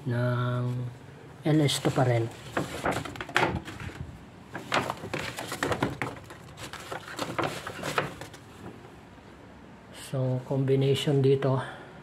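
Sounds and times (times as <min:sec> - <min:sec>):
packaging rustling and crinkling: 0:01.7 - 0:08.7.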